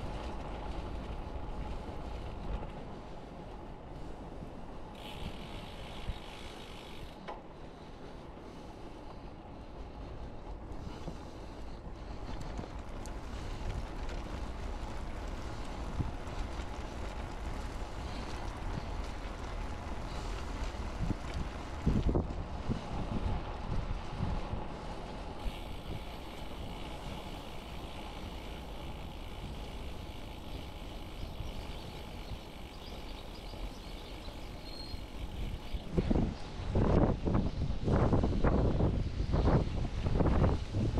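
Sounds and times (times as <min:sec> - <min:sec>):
tyre and road noise: 0:00.0 - 0:40.9
wind rushing over microphone: 0:12.0 - 0:40.9.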